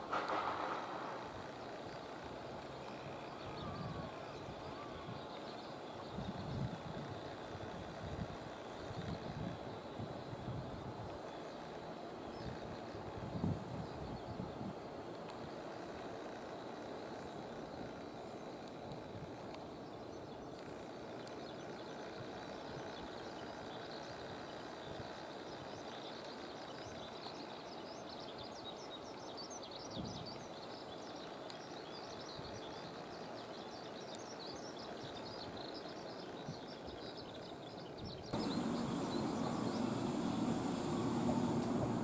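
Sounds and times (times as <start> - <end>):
outdoor background hum: 38.3 - 42.0
bird chirps: 38.4 - 42.0
electric train pulling in: 38.4 - 42.0.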